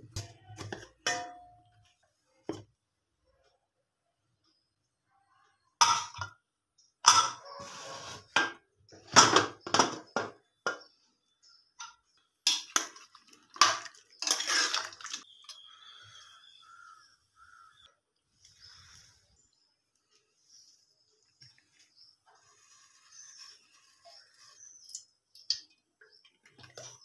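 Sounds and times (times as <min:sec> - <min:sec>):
metal pot lid and spoon clanking: 0:00.1 - 0:01.7, 0:05.8 - 0:06.4, 0:07.0 - 0:07.7.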